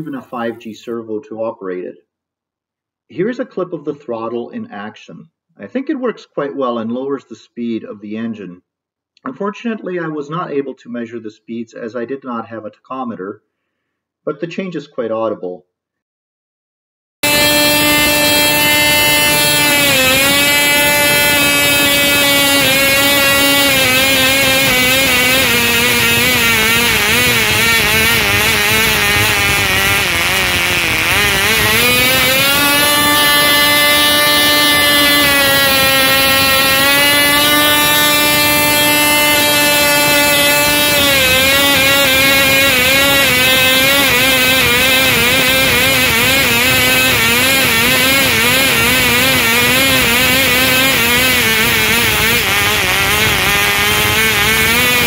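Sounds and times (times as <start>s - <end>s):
model engine running high: 0.0s - 0.6s, 17.2s - 55.0s.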